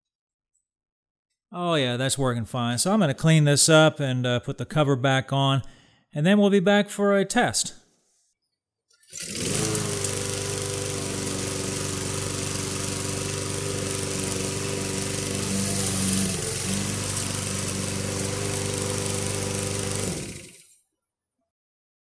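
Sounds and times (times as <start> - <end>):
lawn mower engine running: 9.1 - 20.6.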